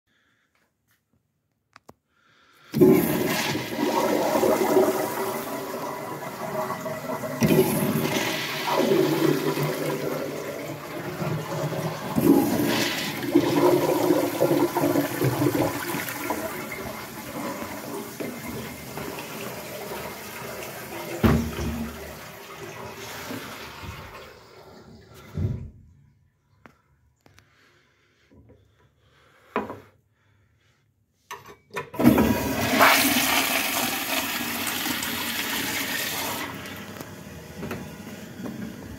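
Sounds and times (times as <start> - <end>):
urinal flushing water rushing: 2.8 - 25.5, 32.0 - 38.9.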